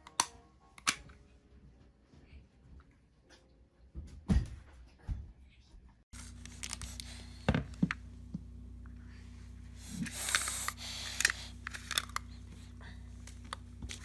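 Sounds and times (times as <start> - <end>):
steady low hum: 6.1 - 14.0.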